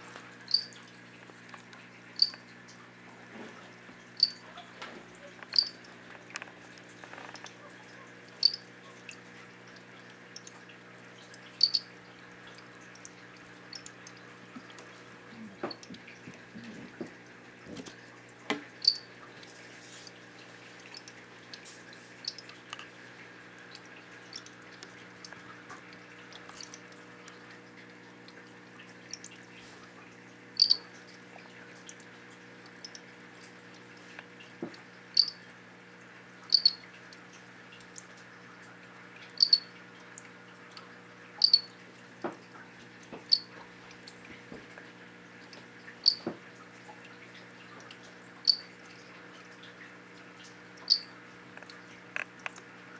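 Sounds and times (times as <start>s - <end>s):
steady low hum: 0.0s - 52.9s
frogs chirping: 0.5s - 0.8s, 2.2s - 2.4s, 4.2s - 4.4s, 5.5s - 5.8s, 8.0s - 8.7s, 11.6s - 11.9s, 18.8s - 19.1s, 30.6s - 30.8s, 35.2s - 35.4s, 36.5s - 36.8s, 39.4s - 39.7s, 41.4s - 41.7s, 43.3s - 43.5s, 46.0s - 46.3s, 48.4s - 48.7s, 50.8s - 51.2s.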